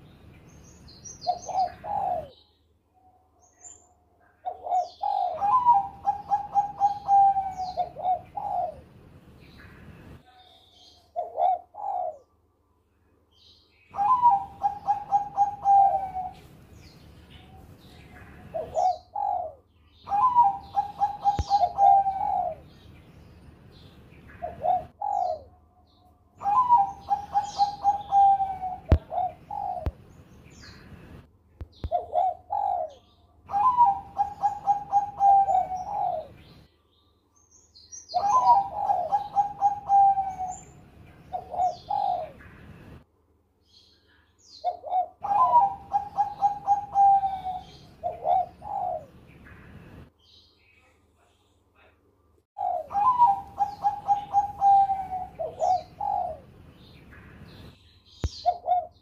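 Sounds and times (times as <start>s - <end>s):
dove cooing: 1.1s - 3.3s, 4.4s - 9.0s, 10.2s - 12.4s, 13.9s - 22.8s, 24.3s - 30.0s, 31.8s - 36.5s, 38.1s - 42.7s, 44.6s - 49.2s, 52.6s - 56.5s, 58.2s - 59.0s.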